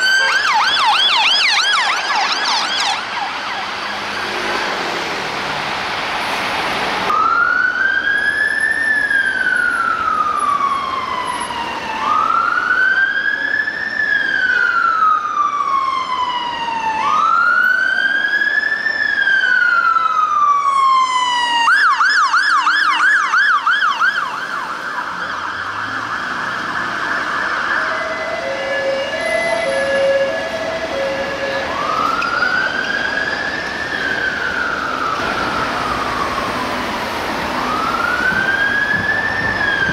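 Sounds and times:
fire engine siren: 0.0 - 39.9.

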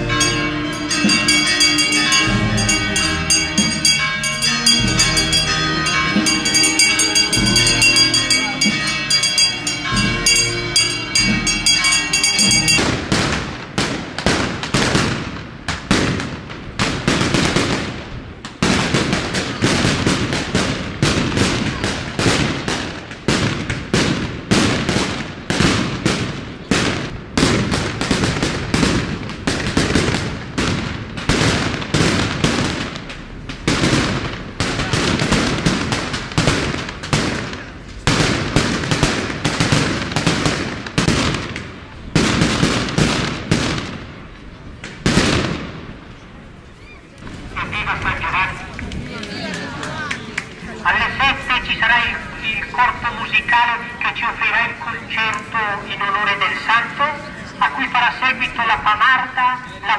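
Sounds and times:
band music: 0.0 - 13.0
firecrackers banging: 0.0 - 59.9.

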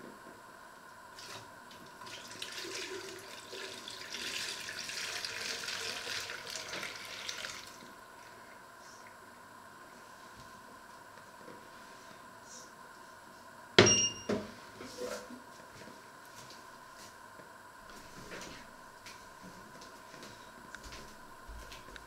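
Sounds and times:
liquid pouring through funnel: 1.2 - 8.4.

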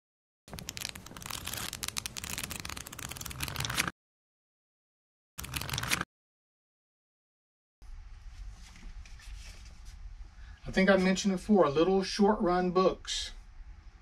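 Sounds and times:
paper pages riffling: 0.5 - 3.9.

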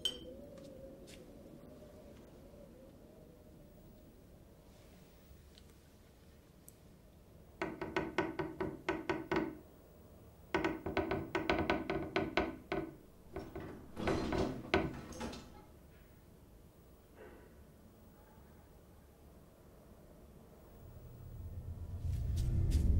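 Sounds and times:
rapid knocking on wood: 7.6 - 9.6, 10.5 - 15.0.

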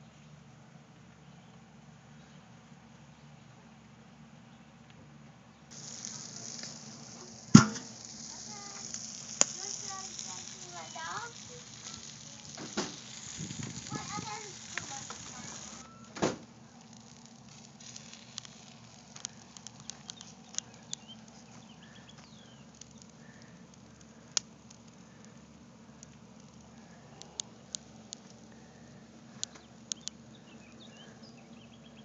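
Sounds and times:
meat sizzling on a grill: 5.7 - 31.7
pops and crackles of coals: 5.7 - 32.0
thump: 16.2 - 16.5.

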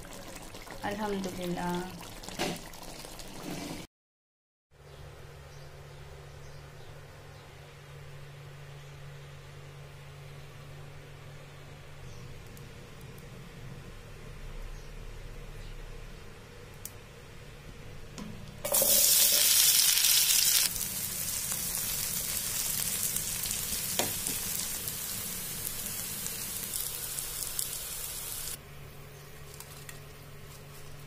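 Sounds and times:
onions sizzling in hot oil: 18.7 - 28.6.

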